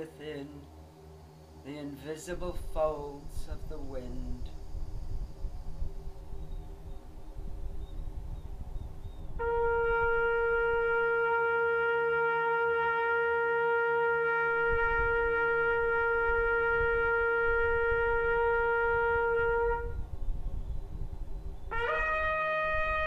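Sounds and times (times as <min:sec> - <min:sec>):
long steady horn note: 0:08.9 - 0:23.0.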